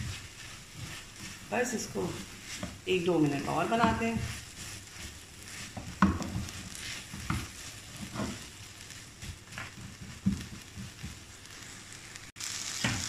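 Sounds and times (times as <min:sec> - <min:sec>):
spatula scraping a pan: 0:00.0 - 0:12.2
vegetables sizzling in a frying pan: 0:00.0 - 0:13.0.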